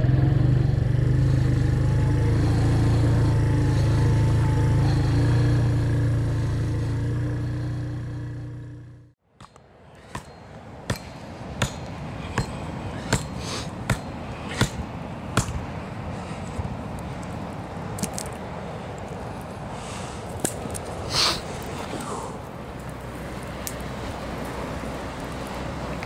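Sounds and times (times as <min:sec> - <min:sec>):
motorcycle engine running: 0:00.0 - 0:09.2
sharp evenly spaced knocks: 0:09.4 - 0:15.7.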